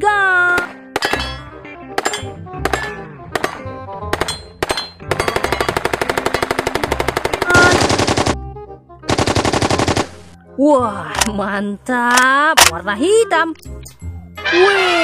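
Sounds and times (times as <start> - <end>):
submachine gun firing: 2.6 - 8.4, 9.1 - 10.3.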